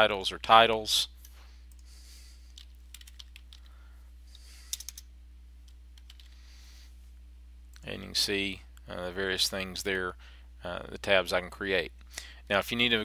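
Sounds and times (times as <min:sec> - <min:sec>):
low electrical hum: 0:00.0 - 0:13.0
computer keyboard typing: 0:02.5 - 0:03.7, 0:04.7 - 0:05.0, 0:06.0 - 0:06.4.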